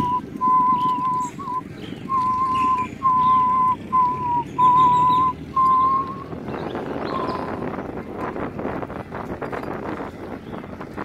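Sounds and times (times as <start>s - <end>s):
man whistling long notes: 0.0s - 6.3s.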